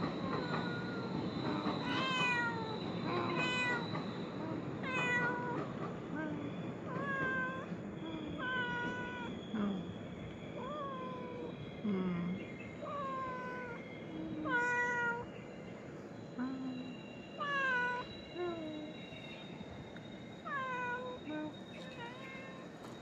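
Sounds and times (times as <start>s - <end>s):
cat meowing: 4.8s - 5.6s, 6.9s - 7.7s, 8.4s - 9.3s, 14.4s - 15.3s, 21.8s - 22.6s
cat chirp-like calls: 12.8s - 15.4s.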